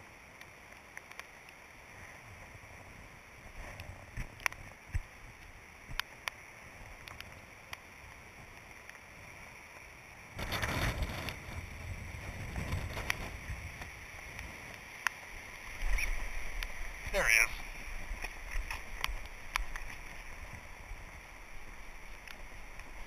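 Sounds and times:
faint steady hiss: 0.0s - 23.0s
wind gust on microphone: 10.3s - 23.0s.

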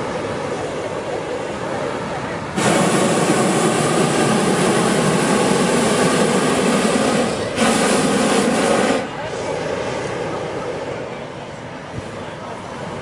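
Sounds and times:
propane burner firing: 2.5s - 11.0s.

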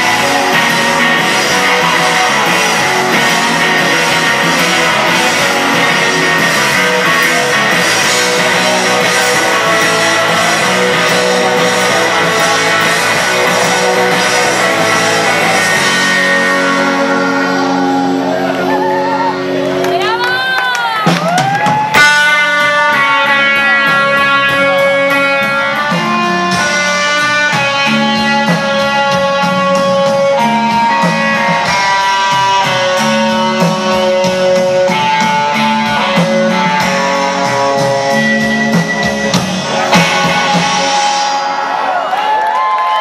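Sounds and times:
drum kit with cymbals: 0.0s - 18.4s, 20.8s - 43.0s
sliding guitar notes: 0.0s - 20.7s, 21.9s - 42.2s
distorted electric guitars: 0.0s - 43.0s.

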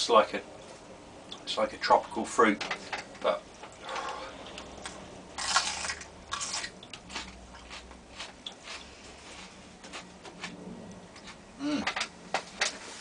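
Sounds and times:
biting into chilli pod: 5.4s - 8.9s.

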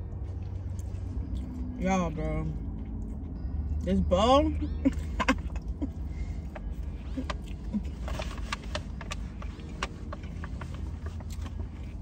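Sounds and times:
low car hum: 0.0s - 12.0s
soft rustle: 6.2s - 12.0s
chewing: 6.4s - 12.0s.

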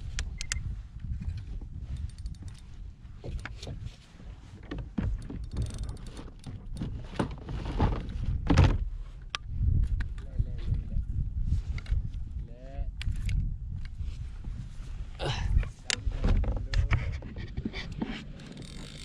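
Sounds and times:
knocks and thumps on a kayak: 3.2s - 8.9s, 16.1s - 18.2s.

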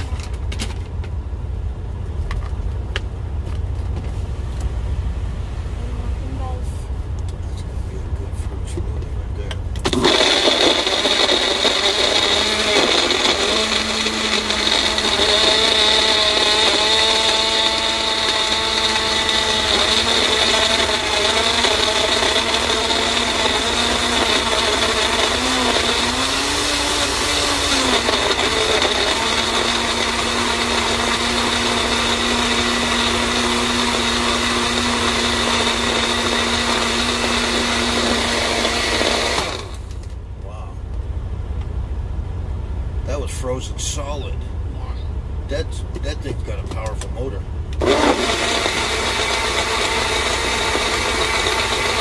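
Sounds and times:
blender motor crushing frozen fruit: 9.8s - 40.1s, 47.8s - 52.0s.

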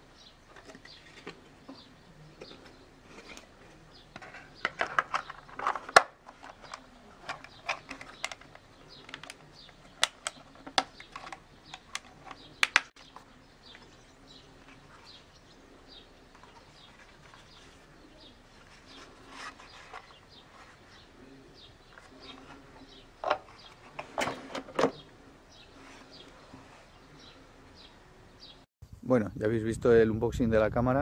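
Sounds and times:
plastic clicks and snaps: 4.6s - 13.0s.

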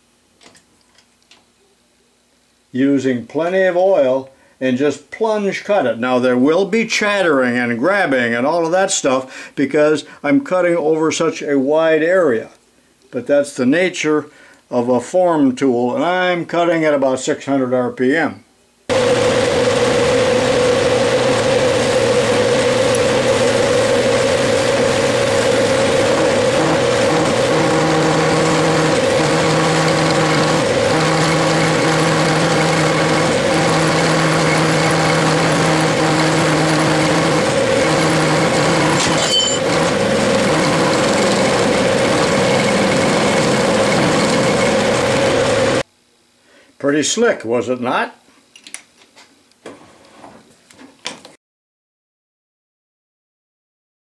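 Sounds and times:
lower machine tone: 18.9s - 45.8s
metal lathe whining: 18.9s - 45.8s.

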